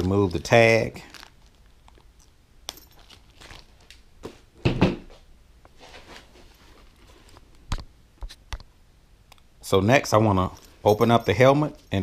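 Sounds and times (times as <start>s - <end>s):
small clicks and rustles: 1.2s - 4.0s.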